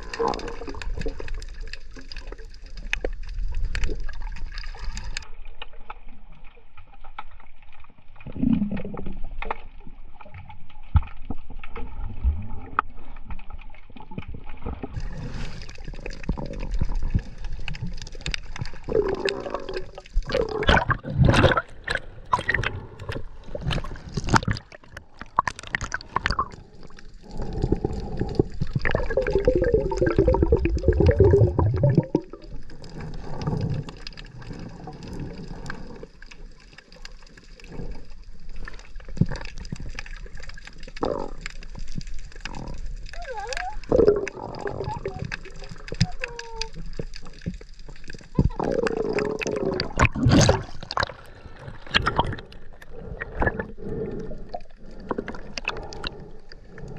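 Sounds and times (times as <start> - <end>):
bubbling gurgle: 0.0 - 56.9
water sloshing and gurgling: 0.0 - 56.9
sharp water splashes: 48.8 - 52.5.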